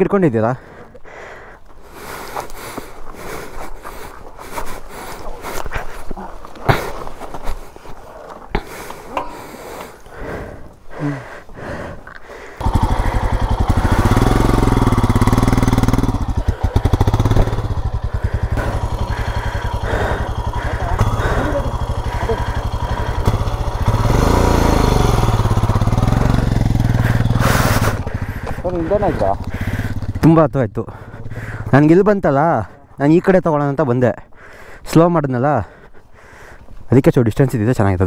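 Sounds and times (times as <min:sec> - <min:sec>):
motorcycle engine revving: 0:12.6 - 0:32.2.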